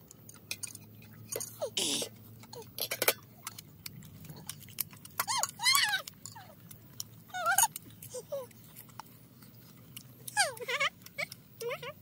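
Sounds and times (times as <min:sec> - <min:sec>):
cutlery clinking against plates: 0:00.3 - 0:03.6
high-pitched wavering cries: 0:05.2 - 0:06.6, 0:07.3 - 0:08.5, 0:10.3 - 0:12.0.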